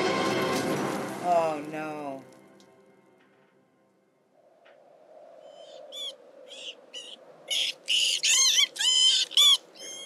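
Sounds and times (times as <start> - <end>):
rat squeaking: 5.5 - 10.0.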